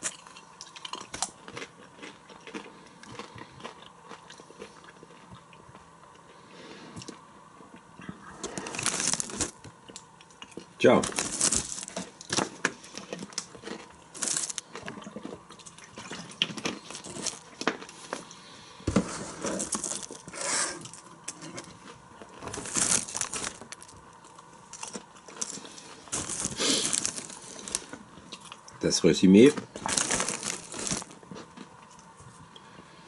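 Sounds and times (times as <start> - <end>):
popcorn bag crinkling: 8.4 - 18.3, 19.2 - 32.0.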